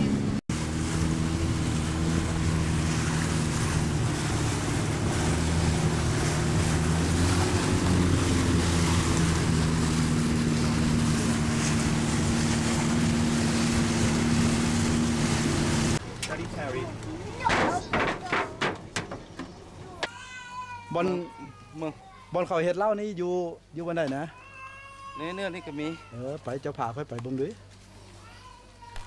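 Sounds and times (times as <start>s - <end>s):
boat engine running: 0.0s - 20.0s
water rushing: 0.0s - 20.0s
wind: 0.0s - 29.0s.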